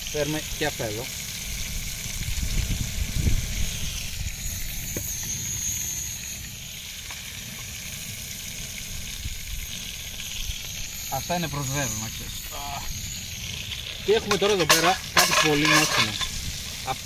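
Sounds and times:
butter sizzling in a pan: 0:00.0 - 0:17.0
rumbling: 0:09.0 - 0:17.0.

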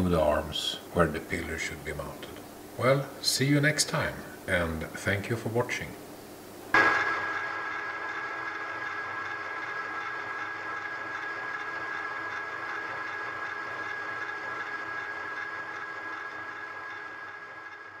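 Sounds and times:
milling machine humming and whining: 0:06.8 - 0:18.0.

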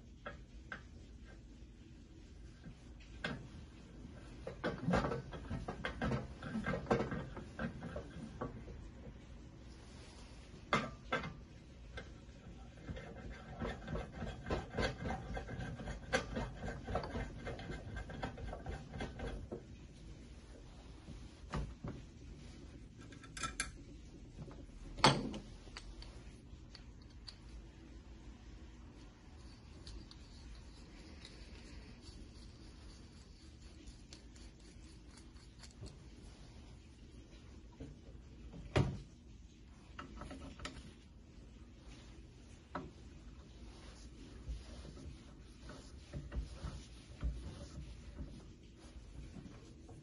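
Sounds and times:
metal clicks taps and scraping: 0:23.0 - 0:23.9, 0:25.0 - 0:27.6, 0:40.0 - 0:40.9.

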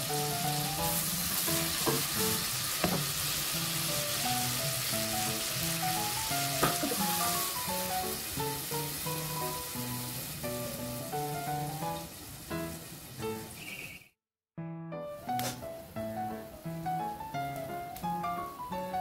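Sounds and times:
spices sizzling in hot oil: 0:00.0 - 0:14.2
gentle melodic background music: 0:03.3 - 0:13.5, 0:14.9 - 0:19.0.

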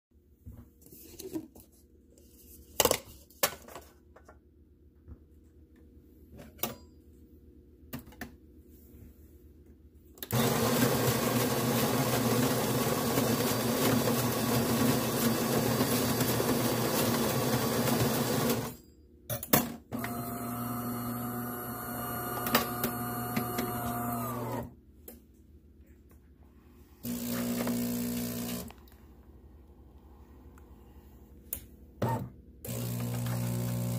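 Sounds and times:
espresso machine whine brewing: 0:10.3 - 0:18.7, 0:20.0 - 0:24.6, 0:27.0 - 0:28.8, 0:32.0 - 0:33.9
grinder grinding coffee beans: 0:10.3 - 0:18.8, 0:20.0 - 0:24.7, 0:27.0 - 0:28.9, 0:32.7 - 0:33.9.

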